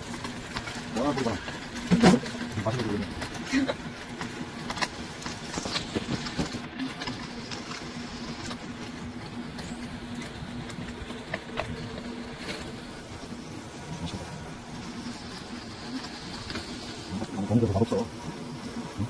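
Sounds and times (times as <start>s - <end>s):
eel sizzling: 0.0s - 19.0s
fat crackling and popping: 0.0s - 19.0s
low mechanical hum: 0.0s - 19.0s.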